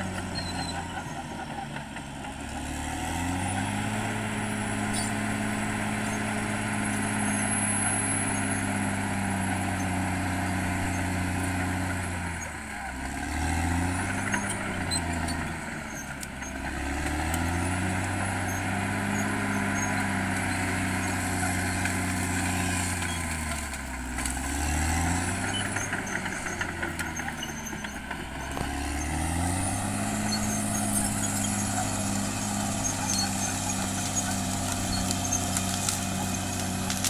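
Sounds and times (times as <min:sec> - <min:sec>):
bulldozer diesel engine working: 0:00.0 - 0:37.0.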